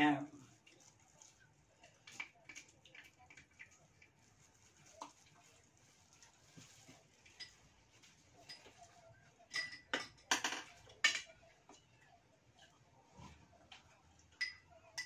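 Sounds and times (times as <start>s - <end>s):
spoons and dishes clinking: 7.2s - 7.7s, 8.4s - 11.4s, 14.3s - 15.0s.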